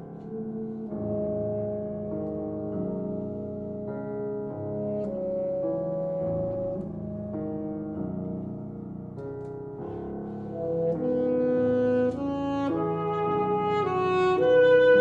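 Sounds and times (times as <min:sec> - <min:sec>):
piano accompaniment: 0:00.0 - 0:15.0
wind instrument long notes: 0:10.6 - 0:15.0.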